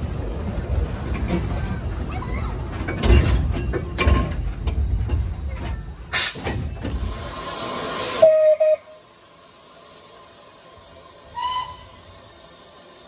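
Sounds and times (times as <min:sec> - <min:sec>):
steam hissing: 0:06.0 - 0:13.0
steam whistle toots: 0:08.0 - 0:09.0, 0:11.3 - 0:12.1.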